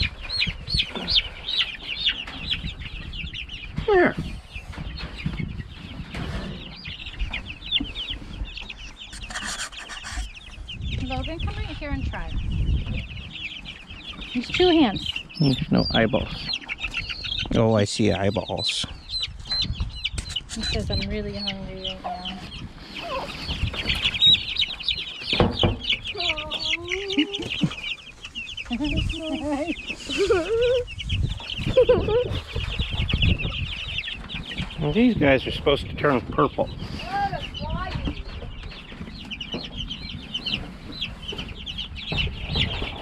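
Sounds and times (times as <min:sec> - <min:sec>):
chicks peeping: 0:00.0 - 0:43.0.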